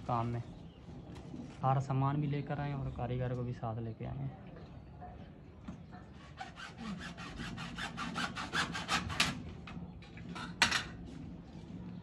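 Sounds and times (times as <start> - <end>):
fast rasping strokes: 6.2 - 9.3.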